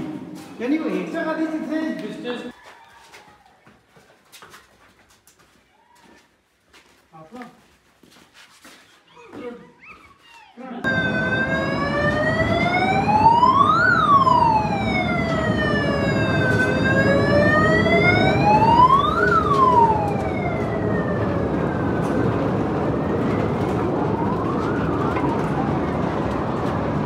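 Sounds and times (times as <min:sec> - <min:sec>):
wailing siren: 0:10.8 - 0:27.0.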